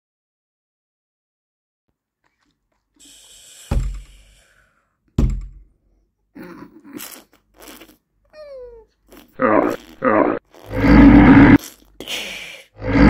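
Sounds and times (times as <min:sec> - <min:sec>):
hiss: 0:03.0 - 0:04.6.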